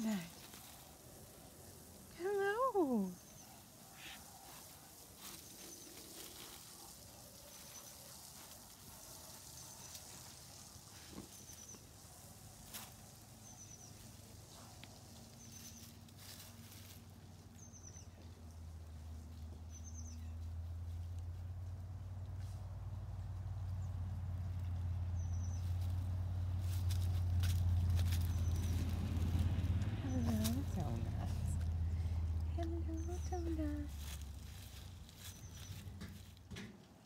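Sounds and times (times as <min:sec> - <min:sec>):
dry leaves rustling: 0:00.0 - 0:36.6
bird chirping: 0:02.3 - 0:04.3, 0:17.6 - 0:18.2, 0:19.7 - 0:20.4, 0:25.2 - 0:25.8.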